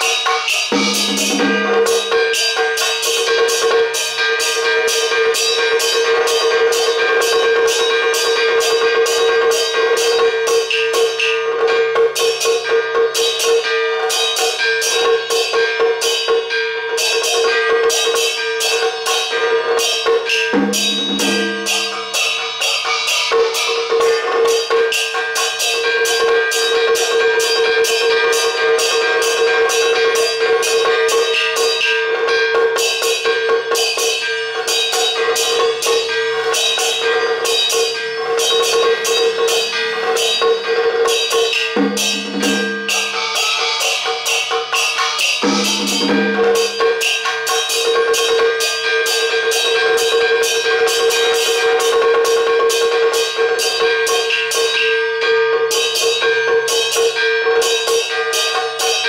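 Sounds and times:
percussion strikes: 0:00.0 - 0:59.0
sustained high held tone: 0:00.7 - 0:02.1, 0:20.9 - 0:22.1, 0:41.8 - 0:43.8, 0:45.4 - 0:46.6.

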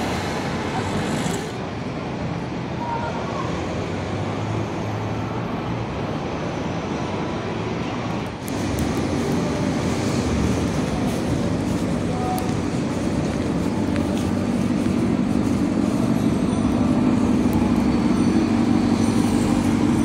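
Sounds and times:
car engines and tyres: 0:00.0 - 0:20.0
deep engine of slow traffic: 0:00.0 - 0:20.0.

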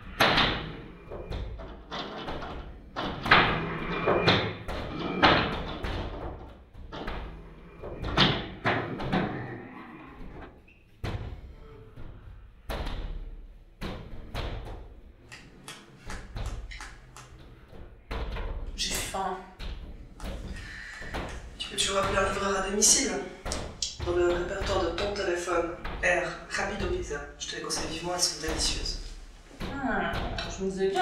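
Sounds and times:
heavy knocks on door: 0:00.0 - 0:15.3, 0:16.0 - 0:31.0.

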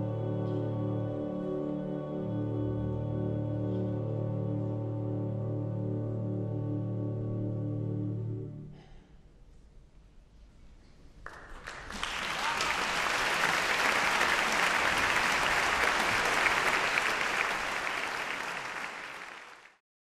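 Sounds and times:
audience applauding: 0:11.2 - 0:19.8.

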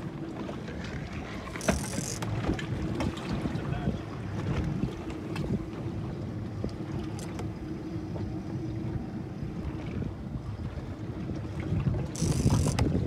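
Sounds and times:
boat engine running: 0:00.0 - 0:13.0
wind buffeting microphone: 0:08.2 - 0:13.0.

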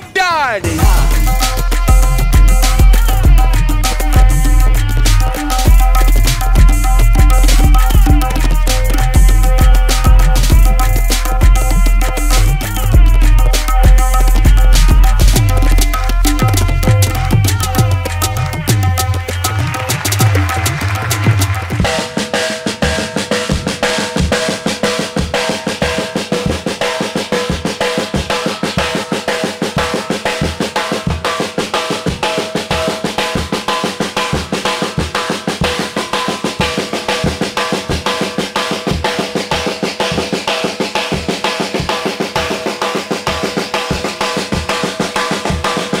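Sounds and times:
drum solo: 0:00.0 - 0:46.0.

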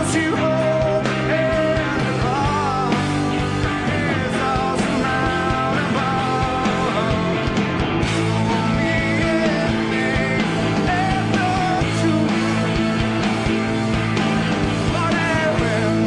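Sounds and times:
lead electric guitar bending notes: 0:00.0 - 0:16.0
rock band playing: 0:00.0 - 0:16.0.

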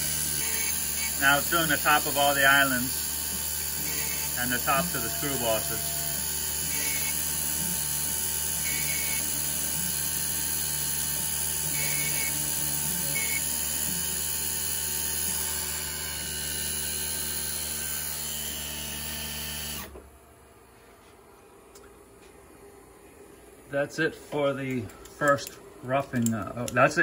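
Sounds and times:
milling machine spindle running: 0:00.0 - 0:20.0.

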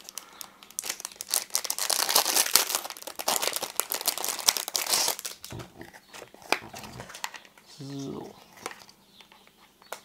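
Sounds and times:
plastic packaging crinkling: 0:00.0 - 0:07.5.

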